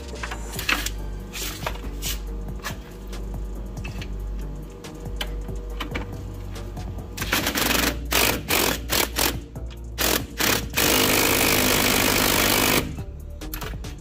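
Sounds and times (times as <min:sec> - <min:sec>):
impact wrench hammering: 0:07.2 - 0:13.0.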